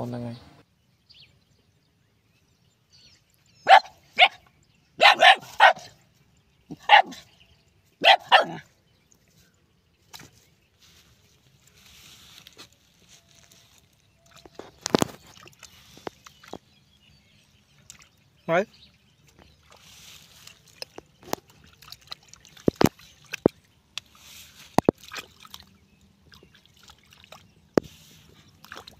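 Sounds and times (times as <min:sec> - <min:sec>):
dog barking: 0:03.6 - 0:04.4, 0:05.0 - 0:06.0, 0:06.7 - 0:07.3, 0:08.0 - 0:08.6.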